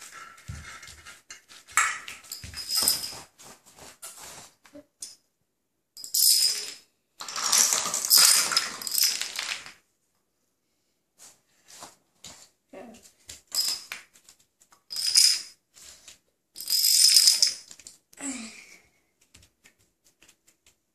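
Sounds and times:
dominoes toppling and clattering: 6.2 - 9.8.

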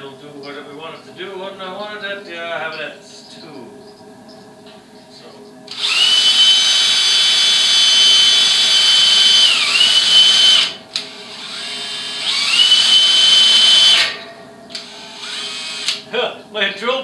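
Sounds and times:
drill motor whining: 5.7 - 16.0.

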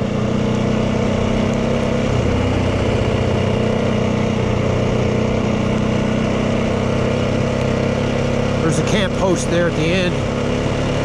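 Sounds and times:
dirt bike engine running: 0.0 - 11.0.

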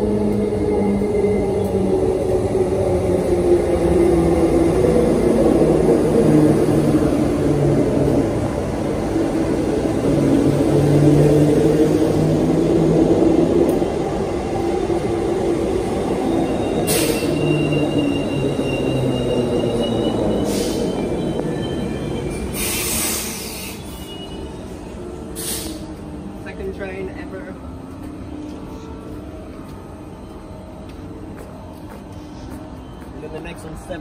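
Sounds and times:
electric train rumbling past: 0.0 - 34.0
high brake squeal: 16.4 - 25.9
short air hiss: 25.4 - 25.9.

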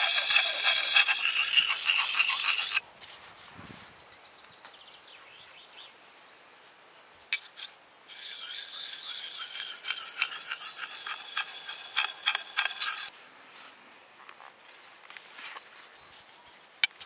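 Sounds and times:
sharpening stone scraping axe: 0.0 - 2.8, 7.3 - 13.1.

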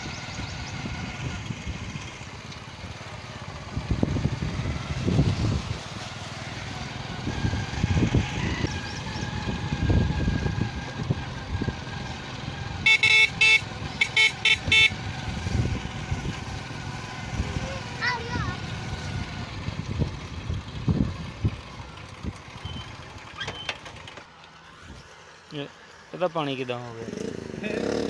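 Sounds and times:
vehicle horn toots: 12.8 - 15.0.

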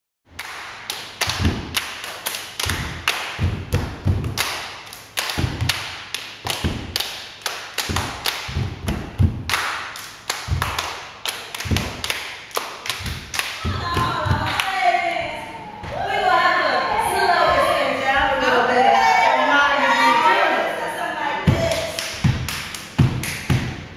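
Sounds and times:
rhythmic percussion thuds and slaps: 0.3 - 14.8, 21.4 - 23.9.

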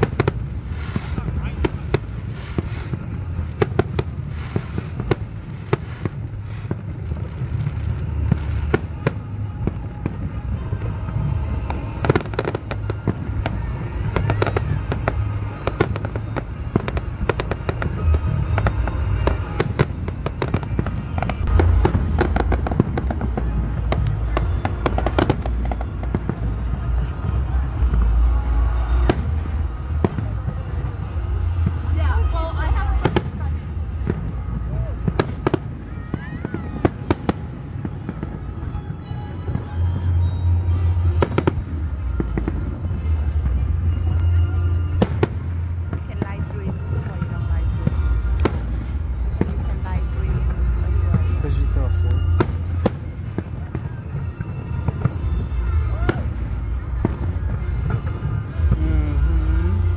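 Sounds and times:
low rumble of booms: 0.0 - 38.6
fireworks bangs and crackles: 0.0 - 59.9.

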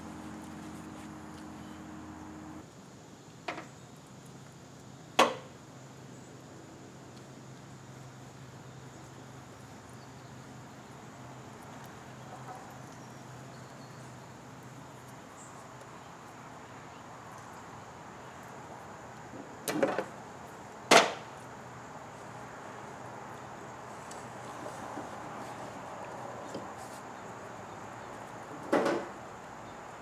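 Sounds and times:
faint low hum: 0.0 - 2.6.

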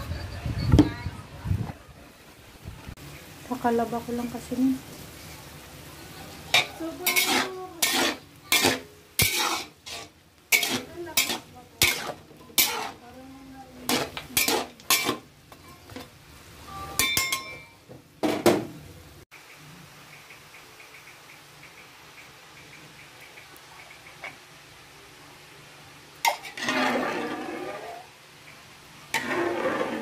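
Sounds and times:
food sizzling in oil: 2.9 - 17.9, 24.8 - 30.0
metal spatula scraping wok: 6.5 - 13.2, 13.8 - 16.1, 26.2 - 28.1, 29.1 - 30.0.

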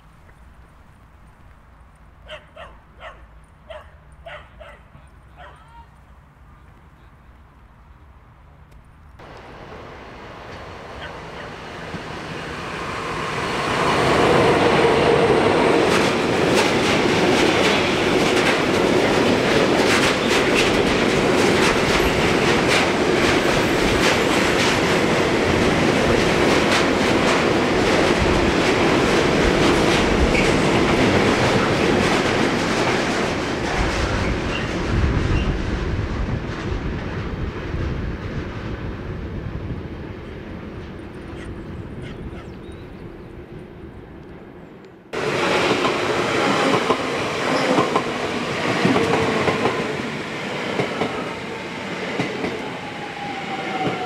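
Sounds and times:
freight train rumbling: 9.2 - 54.0
wheels clicking over rail joints: 15.8 - 34.7.

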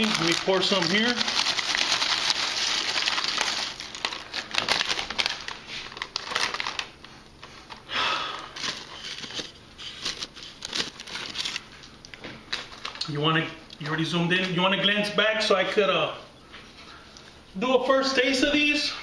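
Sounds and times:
chips crackling onto paper plate: 0.0 - 7.6
chip bag crinkling: 0.0 - 13.2.

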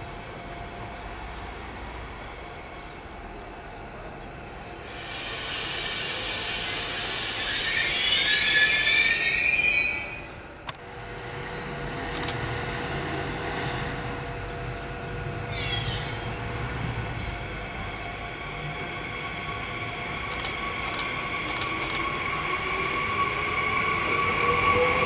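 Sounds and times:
train rumble with steady hum: 0.0 - 25.0
train wheels squealing: 4.4 - 10.4, 11.2 - 25.0.

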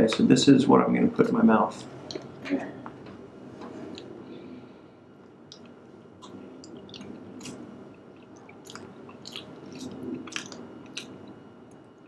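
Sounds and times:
person chewing quietly: 2.1 - 3.0, 3.8 - 4.2, 5.2 - 12.0
wet mouth clicks: 5.5 - 7.6, 8.2 - 11.2.

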